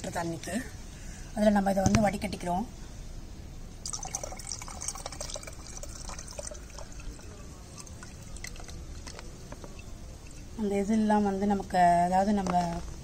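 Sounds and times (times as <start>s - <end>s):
liquid dripping: 3.8s - 10.6s
liquid splashing through strainer: 3.8s - 10.6s.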